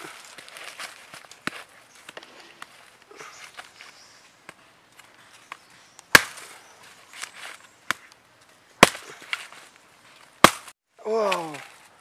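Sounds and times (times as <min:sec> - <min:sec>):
machete chopping coconut husk: 0:06.1 - 0:06.5, 0:08.8 - 0:09.5, 0:10.4 - 0:11.6.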